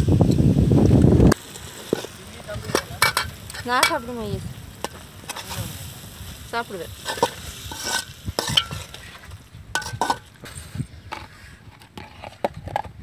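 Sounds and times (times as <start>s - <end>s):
vegetables sizzling: 0.0s - 10.4s
metal skimmer scraping a wok: 2.7s - 4.2s, 4.8s - 5.9s, 7.0s - 12.9s.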